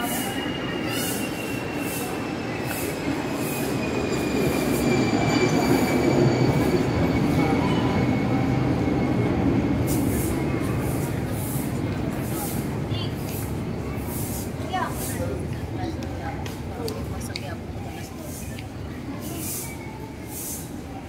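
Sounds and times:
train wheels squealing: 0:00.0 - 0:15.4
train rumble: 0:00.0 - 0:21.0.

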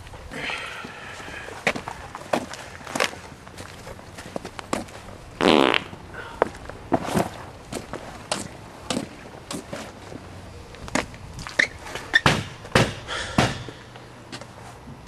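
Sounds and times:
footsteps on a hard surface: 0:01.6 - 0:05.2.

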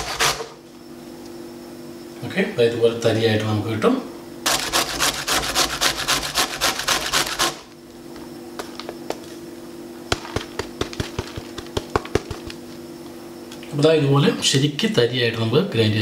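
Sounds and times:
cauliflower rasping on grater: 0:00.0 - 0:00.6, 0:04.5 - 0:07.6.

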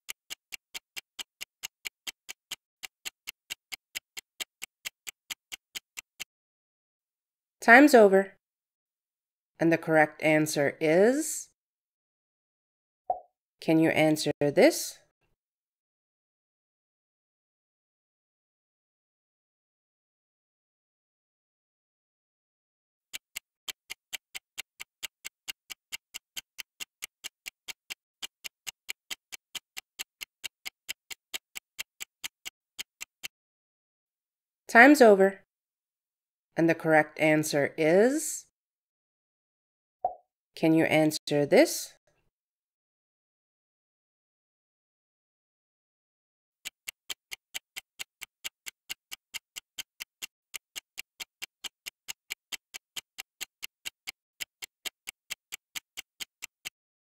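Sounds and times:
rapid clock ticks: 0:00.0 - 0:06.3, 0:23.1 - 0:33.3, 0:46.6 - 0:56.8.

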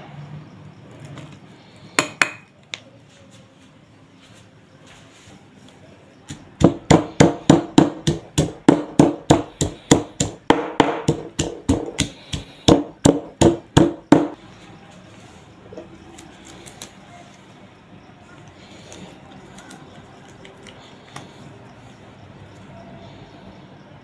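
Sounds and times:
pestle pounding in a mortar: 0:06.3 - 0:14.4.

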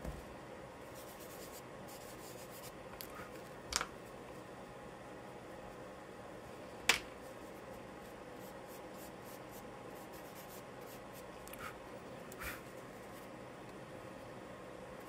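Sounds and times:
charcoal scratching on paper: 0:01.0 - 0:03.3, 0:07.4 - 0:11.8.

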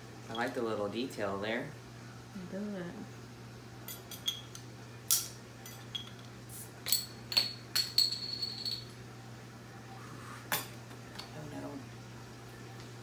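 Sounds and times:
metal and glass clinking: 0:03.8 - 0:04.6, 0:05.6 - 0:09.0.

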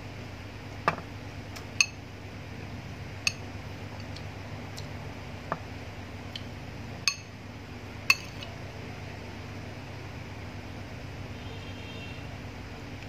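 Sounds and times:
steady low hum: 0:00.0 - 0:13.0
metal spoon clinking on ceramic: 0:08.1 - 0:08.5.

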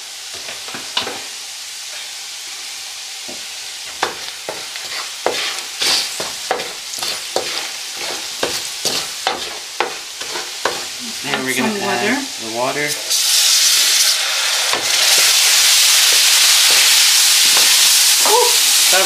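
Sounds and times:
onions sizzling in hot oil: 0:00.0 - 0:19.0
wooden spoon scraping a wok: 0:03.3 - 0:11.6, 0:14.7 - 0:18.0.

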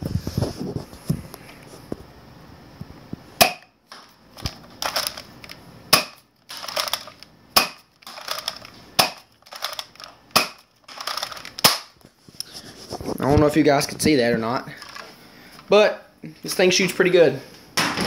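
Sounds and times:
dart blaster shots: 0:05.9 - 0:06.2, 0:10.4 - 0:10.6, 0:11.6 - 0:11.9.

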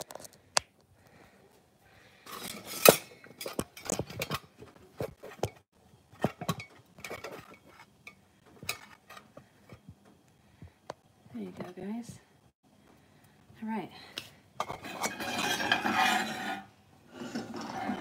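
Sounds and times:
dishes and pans clattering: 0:02.3 - 0:09.9, 0:14.6 - 0:18.0.

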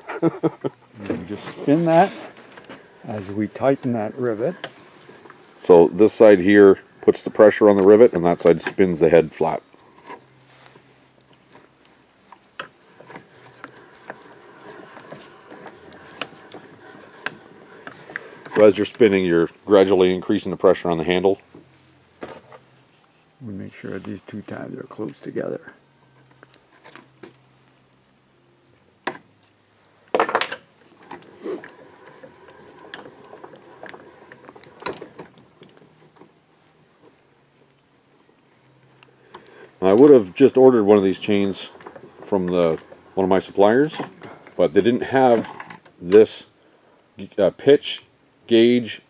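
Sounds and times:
metallic rubbing and grinding: 0:00.8 - 0:21.4, 0:30.9 - 0:37.2, 0:38.5 - 0:46.3.

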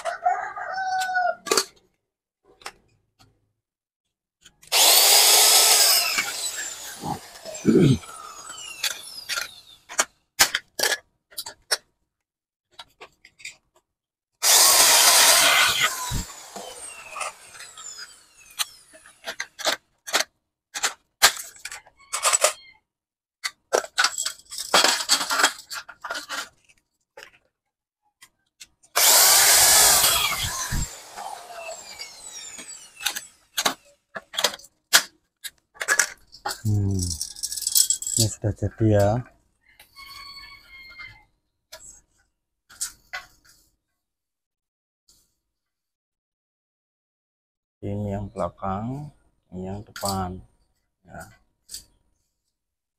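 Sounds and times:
loud rasping noise: 0:04.7 - 0:09.7, 0:14.4 - 0:19.0, 0:29.0 - 0:33.3.

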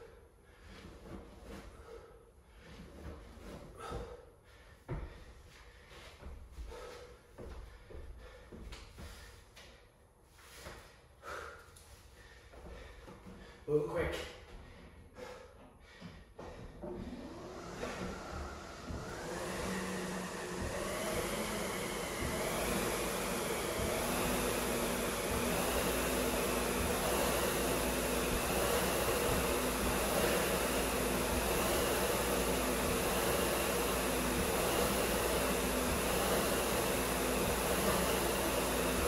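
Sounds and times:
flywheel fan whirring: 0:17.0 - 0:39.0.

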